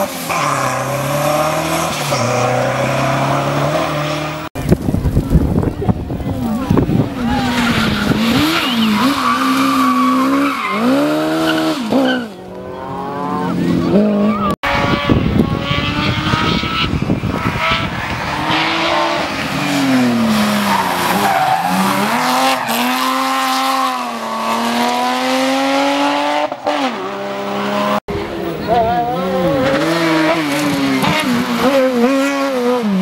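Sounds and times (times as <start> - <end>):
car engines revving through gear changes: 13.6 - 28.0, 29.2 - 33.0.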